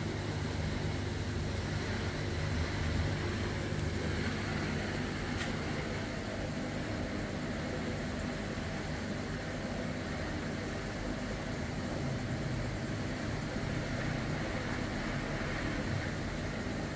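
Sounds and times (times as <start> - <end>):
low motor hum: 0.0 - 7.2.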